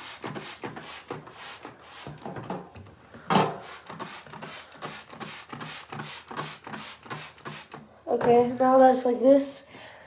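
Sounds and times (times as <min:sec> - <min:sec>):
spray bottle squirting water: 0:00.0 - 0:02.5, 0:03.5 - 0:07.9.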